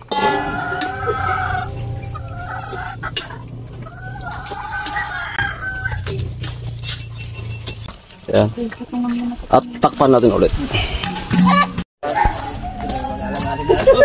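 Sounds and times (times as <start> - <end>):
roosters crowing: 0.0 - 7.9, 11.4 - 14.0.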